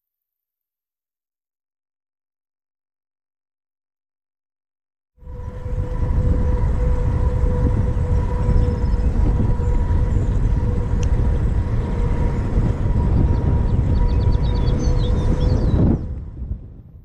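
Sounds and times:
bicycle tyre road noise: 0:05.2 - 0:17.0
wind buffeting microphone: 0:05.2 - 0:17.0.

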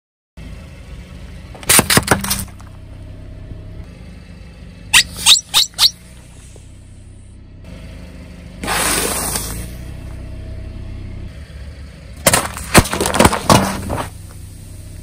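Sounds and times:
low hum of car: 0:00.4 - 0:15.0
soda cans bursting under tyre: 0:12.2 - 0:14.2.

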